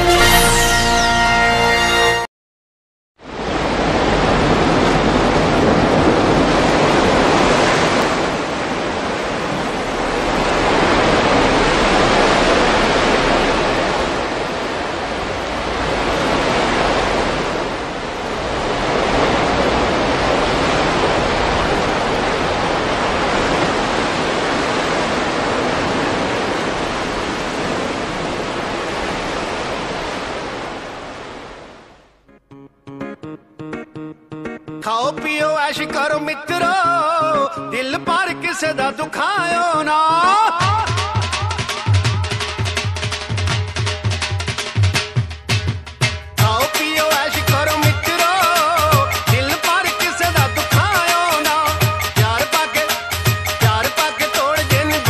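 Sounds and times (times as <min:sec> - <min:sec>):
loud rushing noise: 0:03.3 - 0:24.4.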